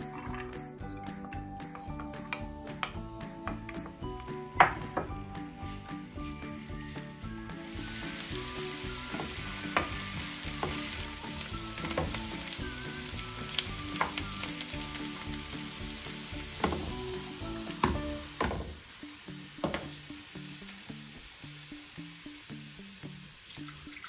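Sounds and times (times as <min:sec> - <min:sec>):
wooden spoon knocking pan: 0:02.0 - 0:05.4, 0:08.7 - 0:12.6, 0:13.5 - 0:14.6, 0:16.4 - 0:18.8, 0:19.6 - 0:19.9
onion sizzling in oil: 0:04.0 - 0:24.0.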